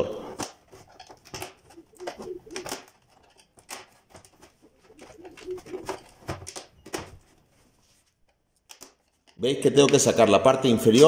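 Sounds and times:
plastic clips snapping: 0.4s - 7.1s, 8.3s - 10.0s.

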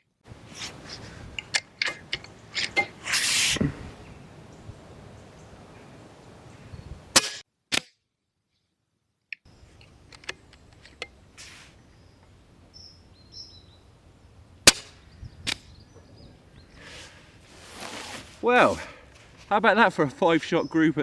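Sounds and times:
air rifle firing cracks: 14.6s - 15.7s.

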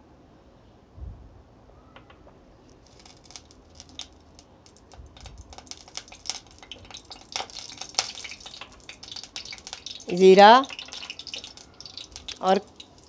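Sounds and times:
seeds crackling in hot oil: 2.7s - 13.0s.

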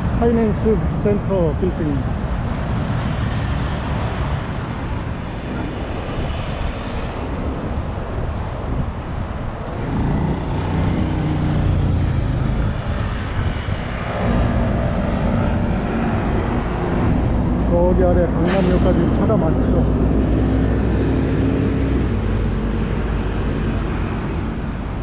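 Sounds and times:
cars passing: 0.0s - 25.0s
loud engine hum: 9.5s - 25.0s.

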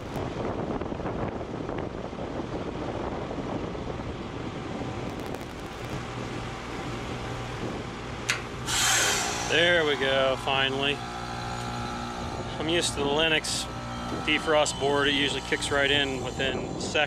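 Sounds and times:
heat pump unit humming: 0.0s - 17.0s
loud rush of noise: 5.0s - 6.0s
heat pump click: 8.2s - 8.5s.

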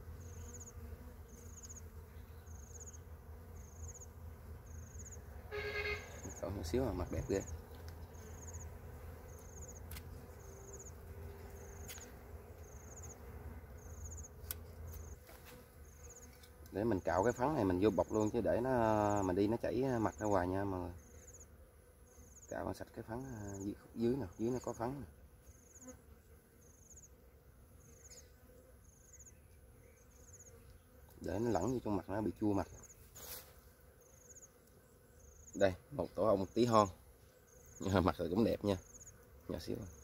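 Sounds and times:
insect chirping in trills: 0.2s - 12.0s, 12.6s - 15.2s, 26.6s - 27.1s, 27.8s - 30.7s, 34.0s - 35.7s, 37.4s - 40.0s
thin high whine: 5.5s - 6.5s.

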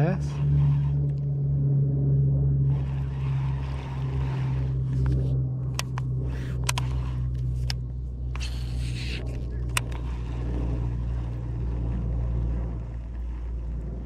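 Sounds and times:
low motor hum: 0.0s - 14.0s
sharp clicks: 5.0s - 7.8s, 8.4s - 10.0s.

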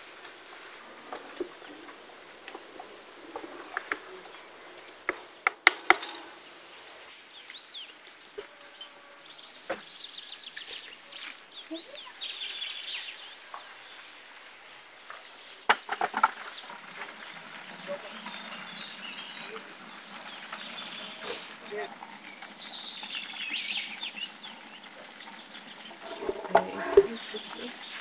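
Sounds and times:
small birds chirping: 6.3s - 28.0s.

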